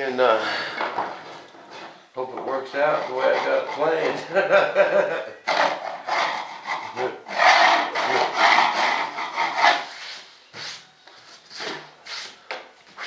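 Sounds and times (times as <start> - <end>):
hand tool rubbing balsa wood: 2.5 - 4.2, 5.5 - 12.4.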